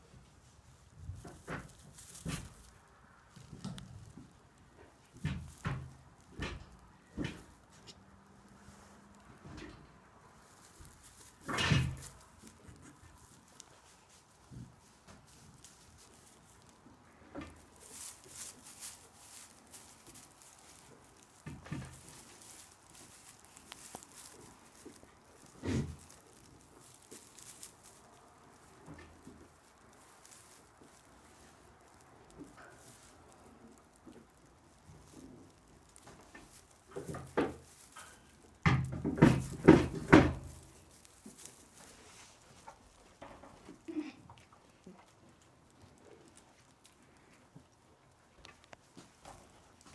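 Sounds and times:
hooves pattering on straw: 0.0 - 49.9
knocks and thumps: 38.7 - 40.6.

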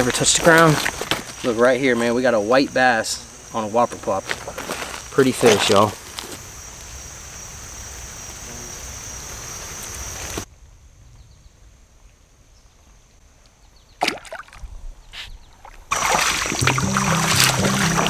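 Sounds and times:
creek water flowing: 15.6 - 18.0
rush of water: 15.9 - 18.0.

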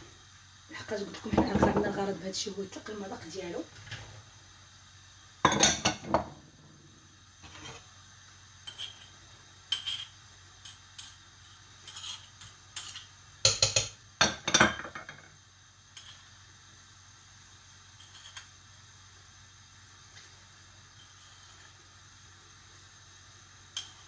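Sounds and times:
ceramic bowls clinking on a pot: 5.5 - 6.3, 11.8 - 15.2.

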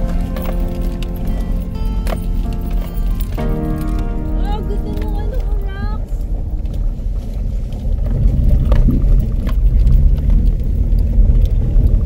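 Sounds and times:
engine and tyres rumbling: 0.0 - 12.0
stones knocking and rattles: 6.6 - 12.0.

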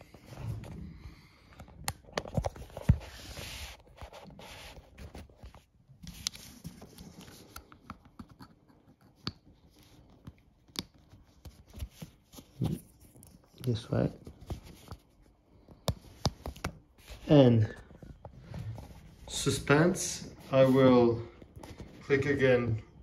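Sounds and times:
rubbing and rustling: 2.2 - 22.7.

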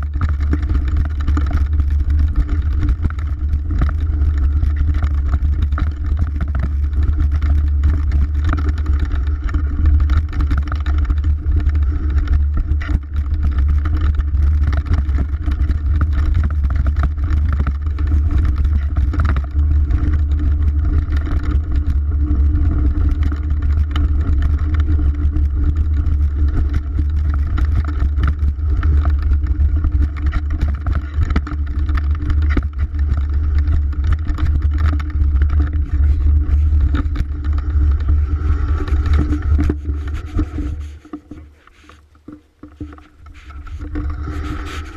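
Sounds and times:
bike rattling and knocking: 0.0 - 44.9
wind rumble on microphone: 0.0 - 44.9
tyres on dirt: 25.6 - 44.9.

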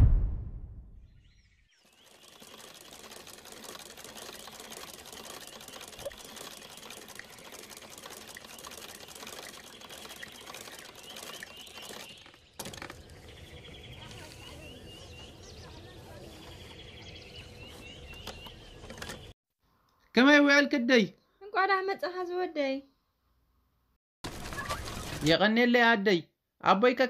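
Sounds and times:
sewing machine clattering: 2.0 - 13.0.

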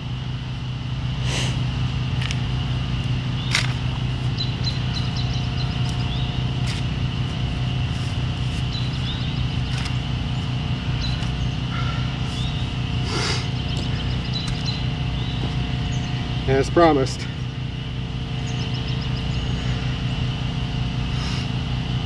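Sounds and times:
birds chirping faintly: 0.0 - 22.0
low hum: 0.0 - 22.0.

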